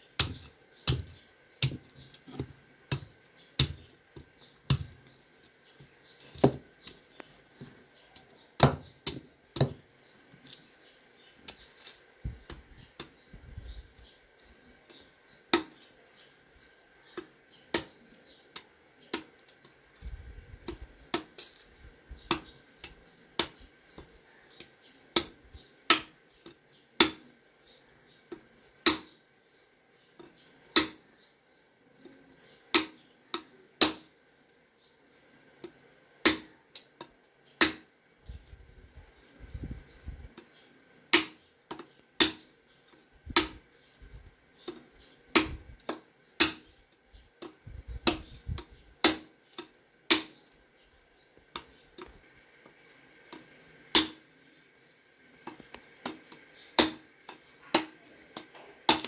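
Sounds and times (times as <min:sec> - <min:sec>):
blade chopping coconut: 0:00.2 - 0:03.8, 0:08.6 - 0:09.8.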